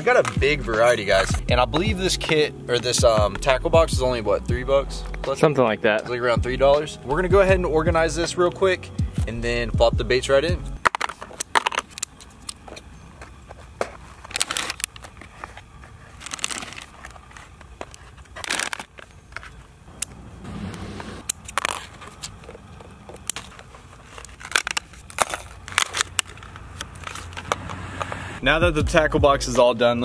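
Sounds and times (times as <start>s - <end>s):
plastic packaging crinkling: 10.8s - 19.8s, 21.3s - 27.6s
plastic dividers clicking: 21.2s - 27.6s.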